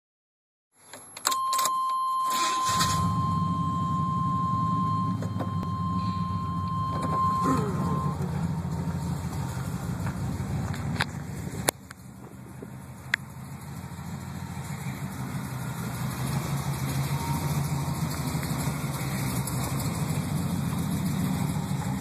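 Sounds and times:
dash warning tone: 1.0s - 9.1s, 16.3s - 17.9s
car engine cranking and idling: 1.2s - 22.0s.

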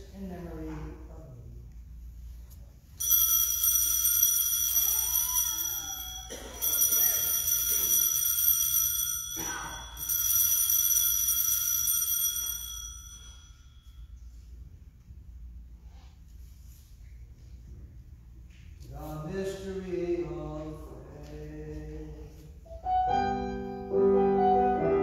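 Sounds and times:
altar bells ringing: 2.9s - 14.4s.

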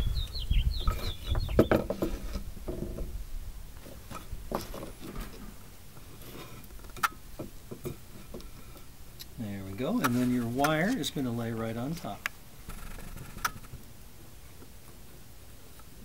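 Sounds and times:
wooden boards knocking and scraping: 0.8s - 3.2s, 3.8s - 5.6s.

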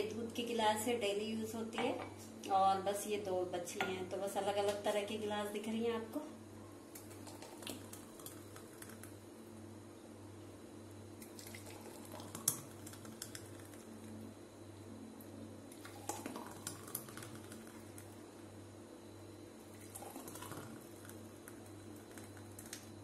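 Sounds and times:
steady low hum: 0.0s - 23.0s
thick liquid pouring: 11.2s - 13.9s, 15.8s - 18.0s, 19.7s - 22.8s.

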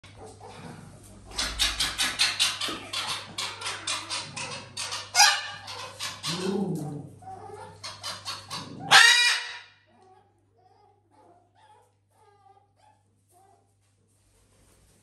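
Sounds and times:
macaw harsh squawk: 8.2s - 9.7s.

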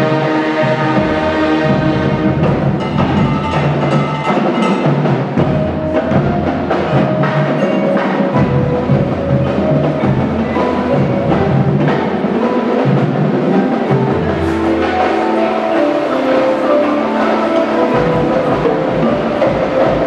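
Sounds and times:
drum and mallet percussion: 0.0s - 20.0s
wind instruments: 0.0s - 20.0s.

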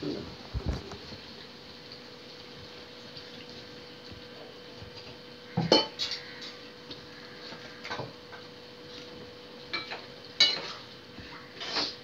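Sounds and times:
metal utensils clinking: 9.7s - 10.9s.

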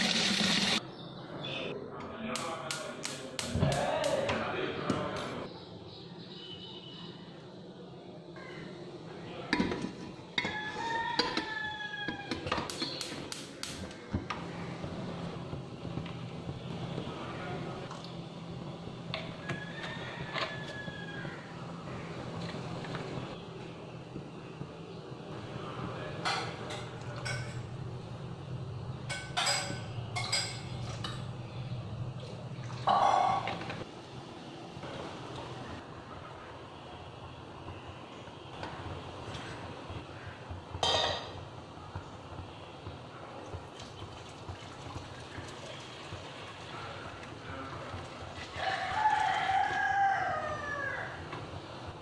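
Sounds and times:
gas burner rumble: 8.4s - 52.0s
metal pots clanking on stovetop: 9.5s - 13.0s, 29.1s - 31.3s, 40.8s - 41.4s.

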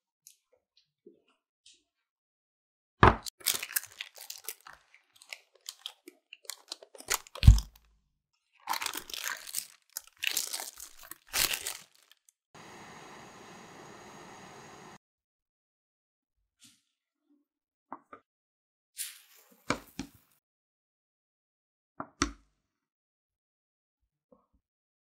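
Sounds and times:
paper crinkling: 3.4s - 7.6s, 8.7s - 12.3s
steady hiss: 12.6s - 15.0s.

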